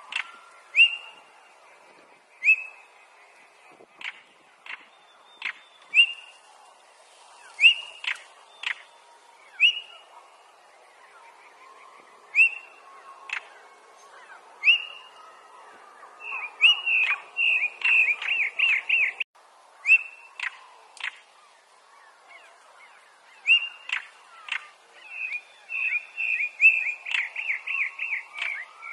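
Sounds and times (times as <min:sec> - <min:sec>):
bird whistles and clicks: 0:04.0 - 0:06.3, 0:07.6 - 0:08.9, 0:19.9 - 0:21.2, 0:23.5 - 0:24.7, 0:25.7 - 0:28.9.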